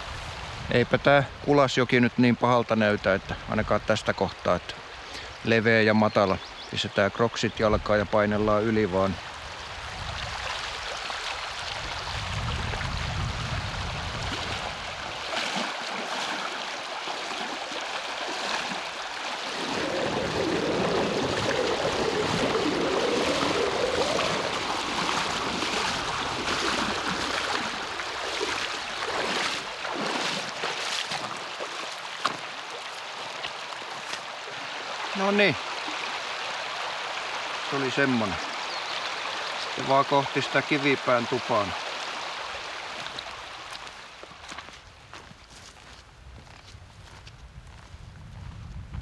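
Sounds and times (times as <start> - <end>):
river rushing: 9.0 - 44.4
legs sloshing through water: 9.6 - 37.7.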